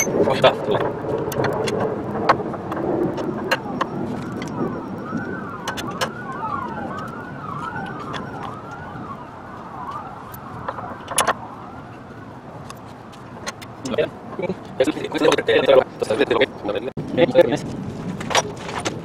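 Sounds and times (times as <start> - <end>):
siren sweeping up and down: 0.0 - 13.1.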